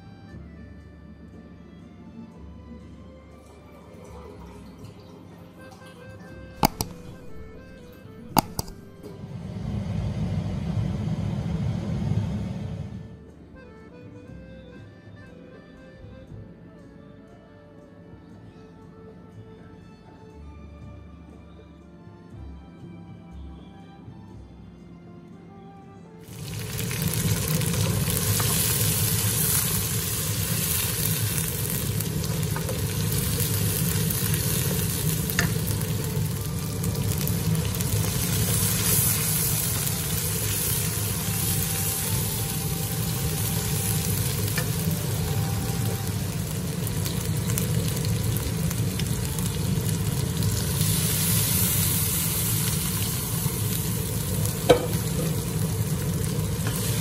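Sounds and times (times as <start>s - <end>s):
spatula scraping wok: 6.6s - 9.0s
paste sizzling in hot oil: 6.6s - 9.1s, 26.2s - 57.0s
sharp clack: 8.3s - 9.1s.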